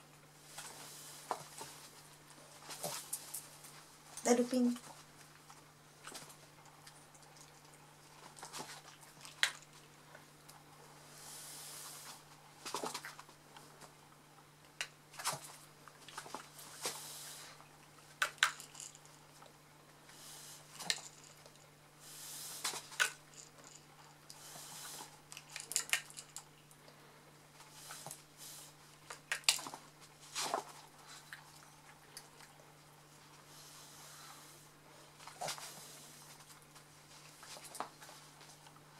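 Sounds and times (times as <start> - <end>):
faint low hum: 0.0 - 38.9.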